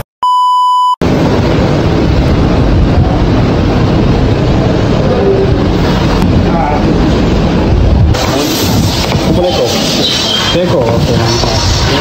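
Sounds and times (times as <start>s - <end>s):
high test tone beep: 0.2s - 1.0s
loud noise with low rumble: 0.9s - 12.0s.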